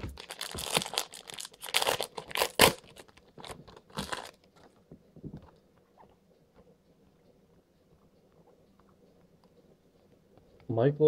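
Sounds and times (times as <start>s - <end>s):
plastic wrapper crinkling and tearing: 0.0s - 4.7s.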